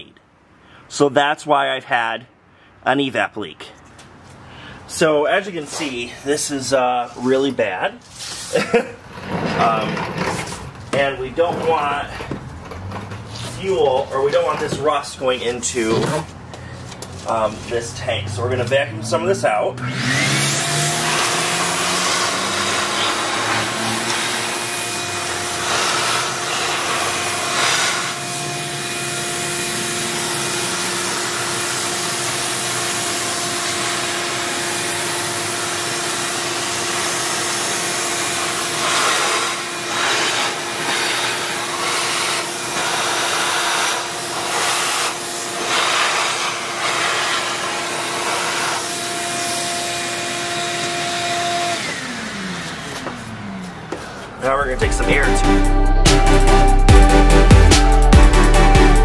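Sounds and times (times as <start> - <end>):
vacuum cleaner motor whine: 19.8 - 54.0.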